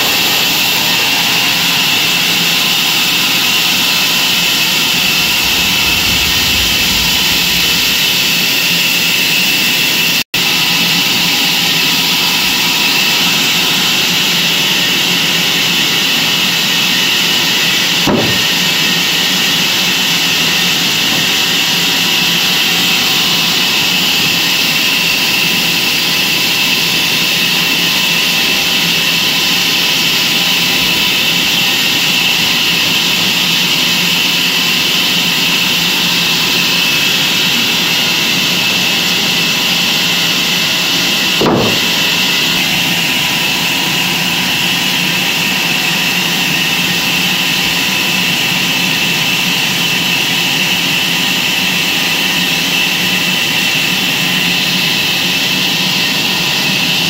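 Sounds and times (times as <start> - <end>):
band sawmill running: 0.0 - 57.0
brief knock: 18.1 - 18.5, 41.4 - 41.9.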